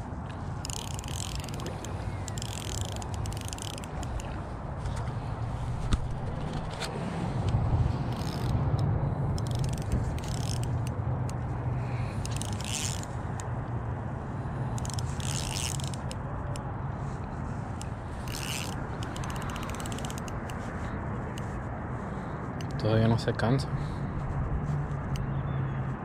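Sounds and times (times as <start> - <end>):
fishing reel drag buzzing: 0.6 - 4.3, 8.1 - 8.5, 9.3 - 10.9, 11.9 - 13.1, 14.6 - 16.2, 17.8 - 20.6.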